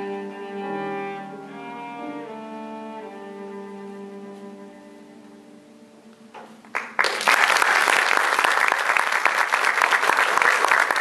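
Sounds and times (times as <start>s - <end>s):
cello note: 0.0s - 6.7s
audience applauding: 6.7s - 11.0s.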